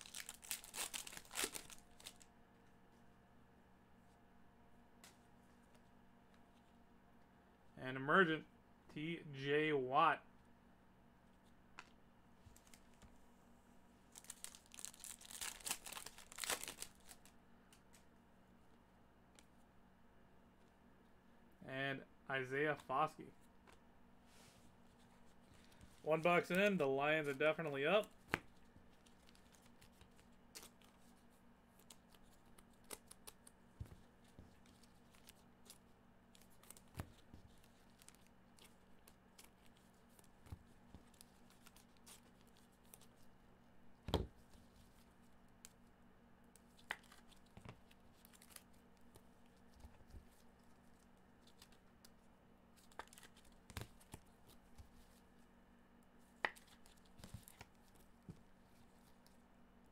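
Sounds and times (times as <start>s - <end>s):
card packaging clicks and rustles: 0.0s - 2.3s, 14.1s - 17.4s, 52.8s - 55.1s
faint steady hum: 0.0s - 59.9s.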